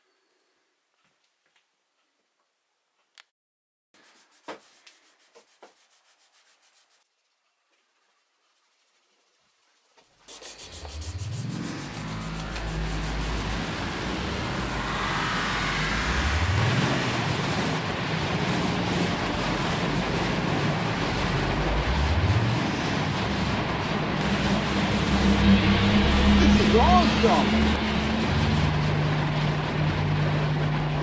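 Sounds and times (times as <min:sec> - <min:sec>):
steady rushing noise: 0:10.1 - 0:31.0
vehicle engine accelerating: 0:10.5 - 0:31.0.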